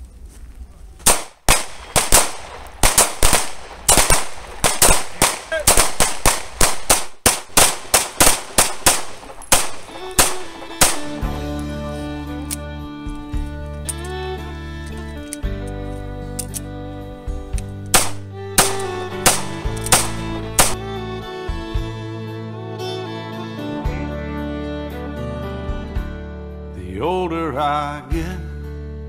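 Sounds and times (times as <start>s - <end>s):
handguns firing: 1.0s - 12.6s, 17.6s - 20.8s
background music: 8.0s - 29.0s.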